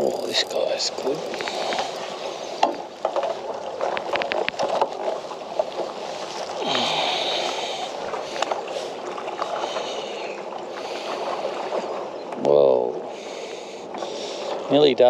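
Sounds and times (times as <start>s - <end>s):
fishing reel whirring: 0.0s - 2.2s
water washing against hull: 0.0s - 15.0s.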